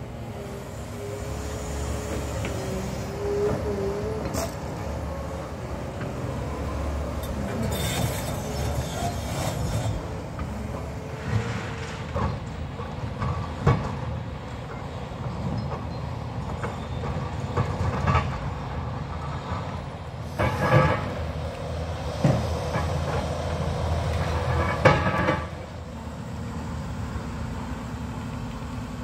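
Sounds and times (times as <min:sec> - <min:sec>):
metal clanks and knocks: 0:24.2 - 0:25.7.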